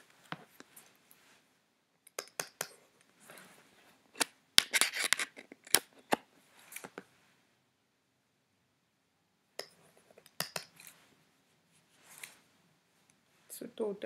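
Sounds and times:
sharp clicks and taps: 0:02.0 - 0:02.8, 0:09.6 - 0:10.8.

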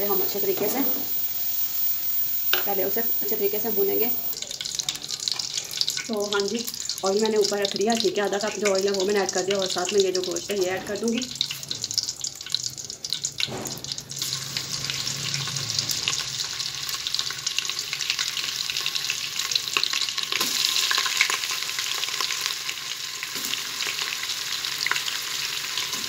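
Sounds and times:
meat sizzling in hot oil: 0:00.0 - 0:26.0.

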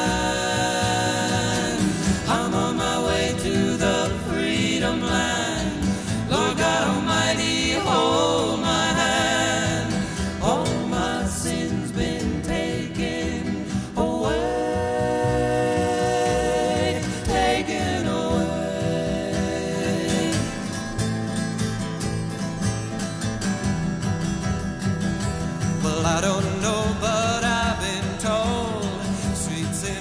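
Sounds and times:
voices singing in harmony: 0:00.0 - 0:21.3
acoustic guitar: 0:00.0 - 0:30.0.

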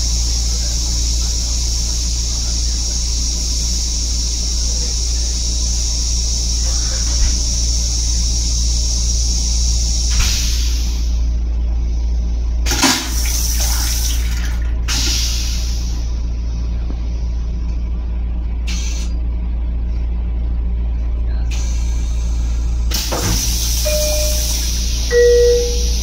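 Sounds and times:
train rumble: 0:00.0 - 0:26.0
toilet flushing: 0:12.6 - 0:16.0, 0:22.9 - 0:26.0.

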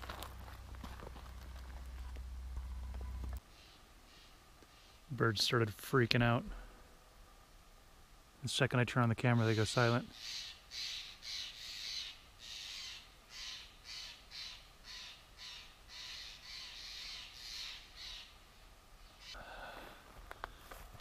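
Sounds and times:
birds giving harsh calls: 0:09.3 - 0:18.4.

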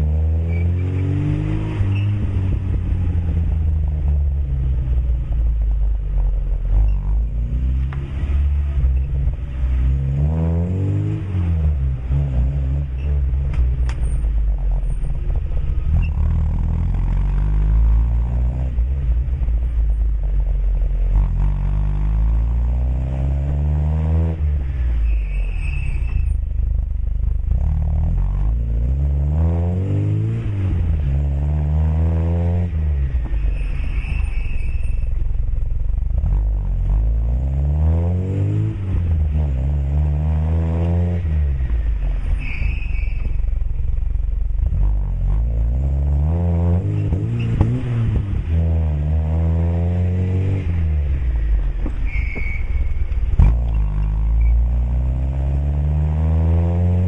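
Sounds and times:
car engine revving: 0:00.0 - 0:57.0
engine idling with low rumble: 0:12.8 - 0:22.7, 0:24.4 - 0:29.0, 0:32.7 - 0:37.3, 0:41.4 - 0:45.7, 0:50.7 - 0:55.2.

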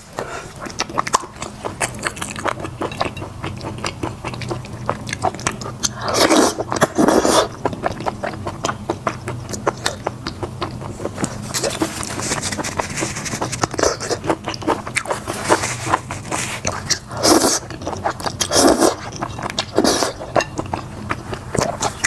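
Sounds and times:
wet chewing and smacking: 0:00.2 - 0:22.0
noodle slurp: 0:03.6 - 0:07.6, 0:10.9 - 0:20.4.

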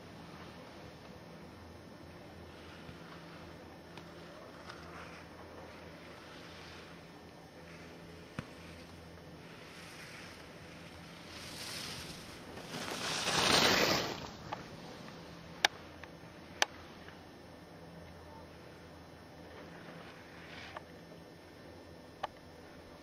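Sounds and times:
skis scraping on snow: 0:02.4 - 0:15.2.

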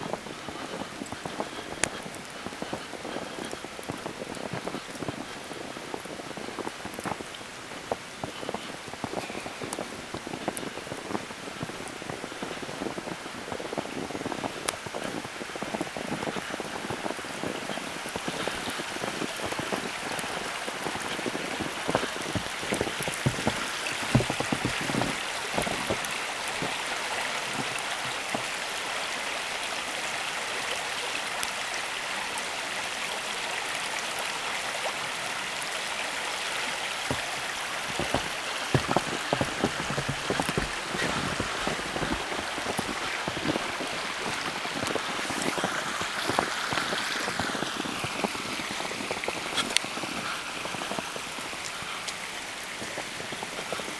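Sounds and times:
footsteps crunching in snow: 0:00.0 - 0:28.7, 0:37.0 - 0:51.8
steady rushing hiss: 0:00.0 - 0:29.7, 0:36.2 - 0:53.9.

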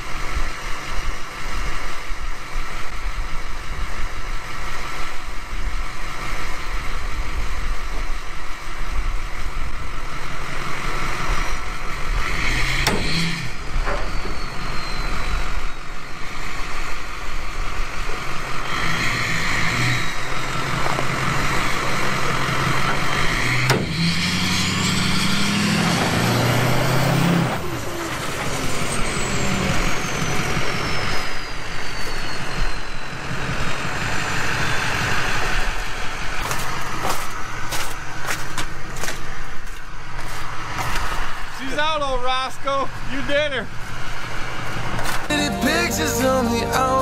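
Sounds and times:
truck engine under load: 0:09.8 - 0:32.2.

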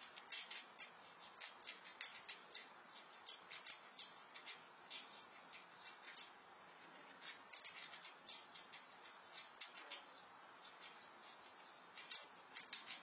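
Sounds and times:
squirrel crunching food: 0:00.0 - 0:13.0.

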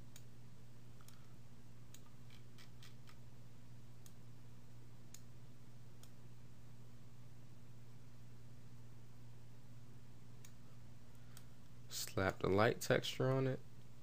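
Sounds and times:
steady low hum: 0:00.0 - 0:14.0
computer mouse clicks: 0:01.0 - 0:01.3, 0:01.9 - 0:03.2.

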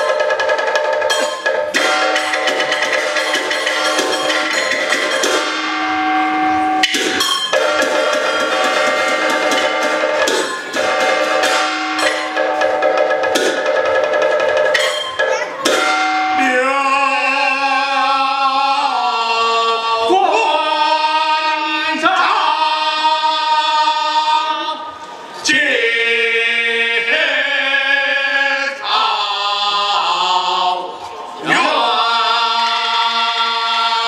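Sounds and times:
sharp percussion strikes: 0:00.0 - 0:17.8
opera singing: 0:25.4 - 0:34.0.

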